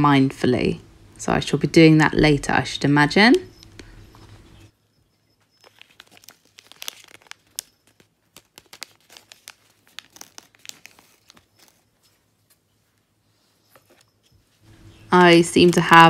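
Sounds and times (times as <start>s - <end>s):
packaging crinkling: 5.4s - 12.7s.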